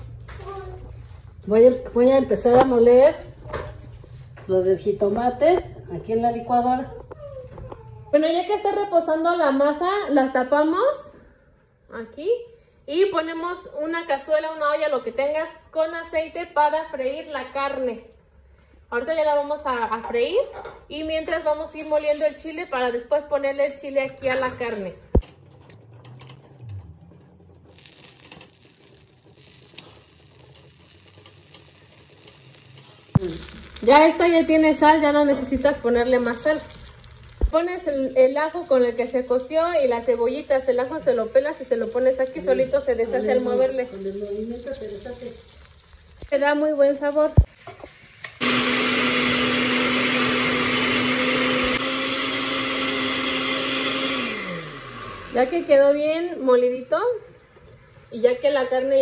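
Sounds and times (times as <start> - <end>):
blender running: 48.3 - 56.0.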